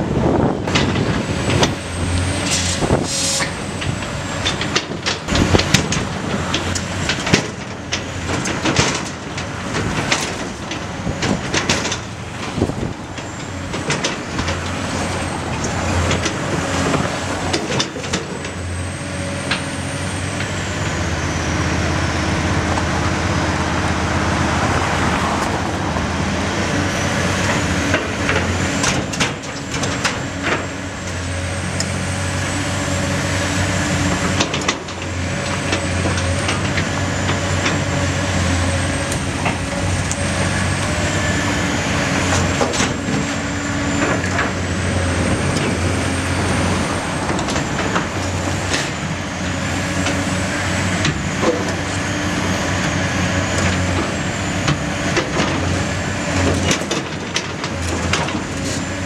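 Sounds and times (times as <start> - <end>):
excavator diesel engine running: 0.0 - 59.0
high hydraulic whine: 0.2 - 5.7.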